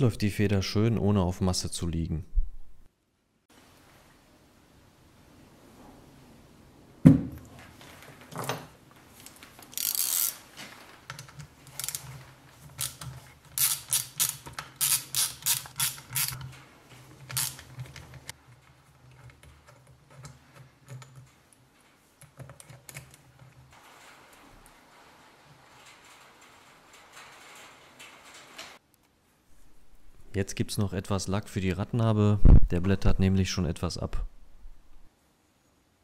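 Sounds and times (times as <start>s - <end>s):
hand ratchet clicking: 9.7s - 10.4s, 11.1s - 16.4s, 17.2s - 18.4s.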